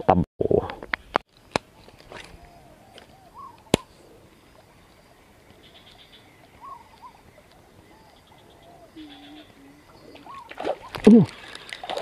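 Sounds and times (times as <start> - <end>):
faint animal calls: 1.8 - 11.3.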